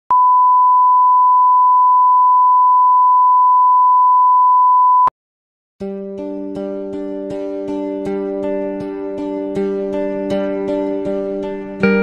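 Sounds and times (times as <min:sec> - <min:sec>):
pure test tone beep: 0:00.1 - 0:05.1.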